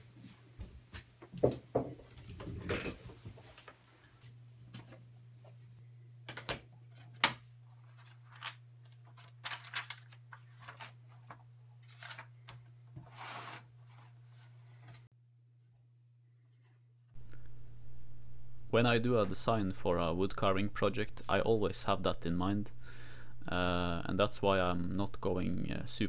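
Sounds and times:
paper rustling and pages flipping: 6.9 - 15.1
steady low hum: 16.3 - 26.0.

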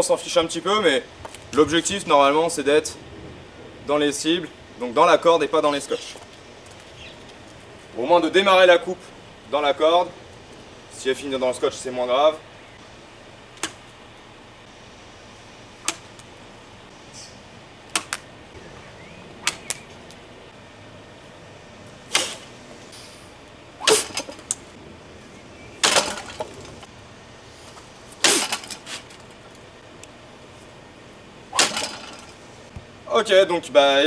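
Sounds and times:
sword cutting rope: 22.1 - 22.5, 23.8 - 24.6, 28.2 - 29.2, 31.5 - 32.4
sword swishing: 22.1 - 22.5, 23.8 - 24.4, 28.2 - 29.1, 31.5 - 32.3.

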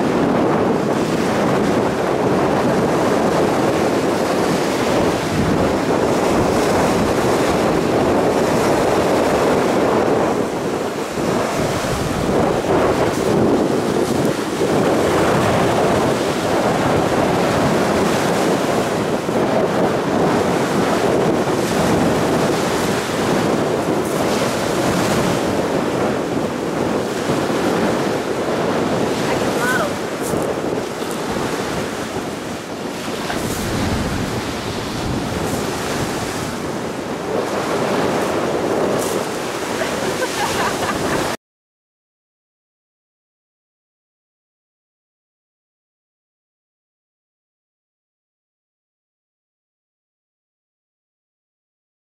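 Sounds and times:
wind buffeting microphone: 0.0 - 41.4
waves breaking on pebbles: 32.9 - 41.3.

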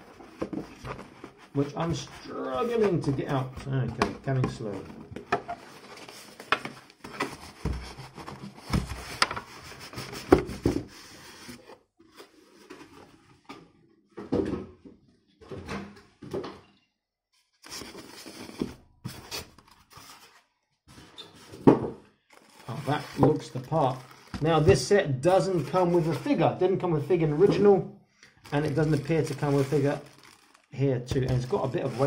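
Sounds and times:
cardboard and foam scraping: 0.0 - 3.7, 5.5 - 13.2, 22.4 - 24.6, 25.3 - 26.5, 28.5 - 30.5, 31.2 - 32.0.

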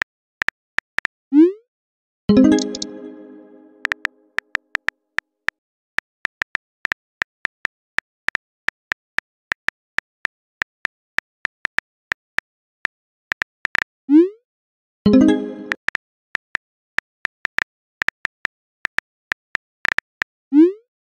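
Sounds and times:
phone keyboard key clicks: 2.6 - 2.9.

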